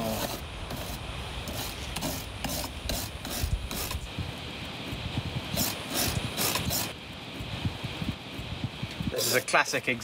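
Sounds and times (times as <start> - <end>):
wire brush scrubbing metal: 0.0 - 4.1, 5.4 - 7.0.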